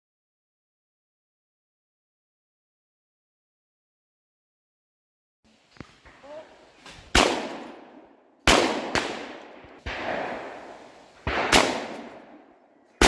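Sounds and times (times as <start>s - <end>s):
shotgun shots echoing: 7.1s - 13.0s.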